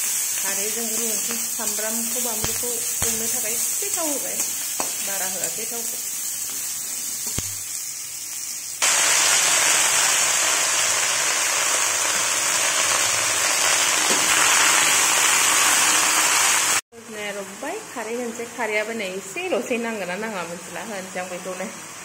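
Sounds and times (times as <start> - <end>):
leaves sizzling in wok: 0.0 - 16.8
vegetables sizzling in oil: 0.0 - 16.8.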